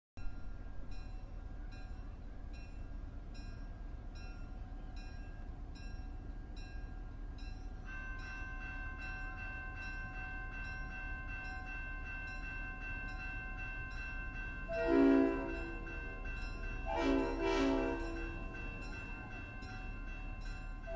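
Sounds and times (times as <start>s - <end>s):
low train rumble: 0.2s - 20.9s
train bell ringing: 0.2s - 20.9s
train horn chord: 14.7s - 16.1s, 16.8s - 18.8s.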